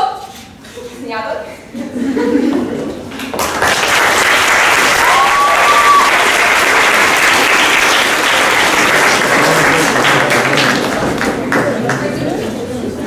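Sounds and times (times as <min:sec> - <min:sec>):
audience applauding: 0:03.1 - 0:12.3.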